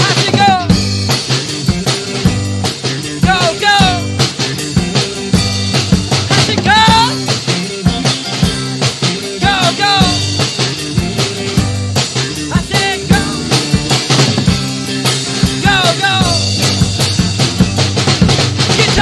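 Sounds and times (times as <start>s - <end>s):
drum kit beat: 0.0s - 19.0s
held bass notes: 0.0s - 19.0s
rock band playing: 0.0s - 19.0s
high notes bending in pitch: 13.0s - 14.8s.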